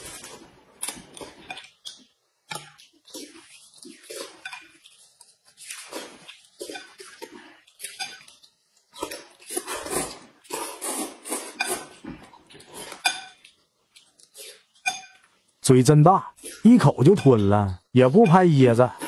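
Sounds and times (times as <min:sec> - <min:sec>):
wet slurping of food: 0:09.5 - 0:12.0.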